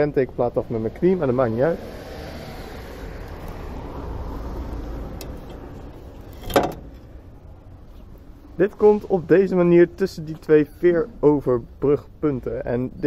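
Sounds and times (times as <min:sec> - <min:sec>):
road vehicle passing: 0:00.0 - 0:13.0.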